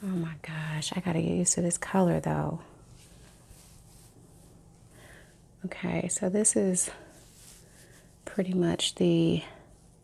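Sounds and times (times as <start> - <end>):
faint low hum: 0.0 - 10.0.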